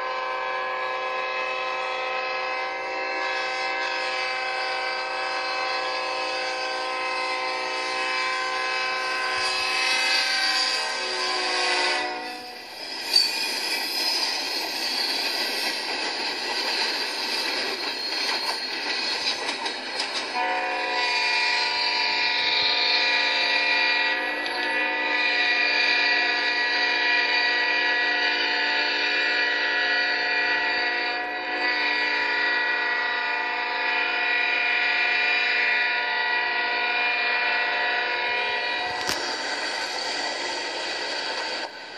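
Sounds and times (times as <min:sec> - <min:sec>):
train horn blast: 0:00.0 - 0:12.7, 0:20.3 - 0:39.3
hiss: 0:09.0 - 0:20.0, 0:39.2 - 0:41.9.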